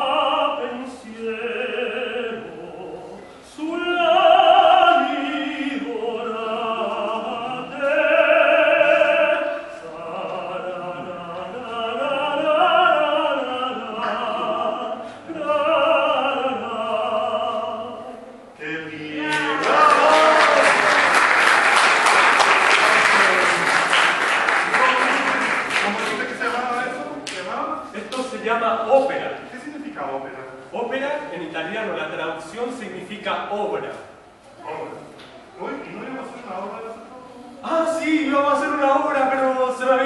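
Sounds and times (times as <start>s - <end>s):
person singing operatic style: 0.0s - 25.2s.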